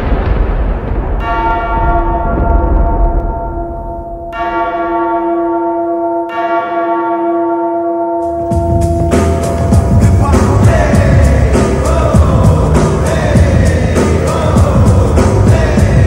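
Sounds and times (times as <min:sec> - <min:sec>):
large bell tolling: 0:01.0 - 0:12.2.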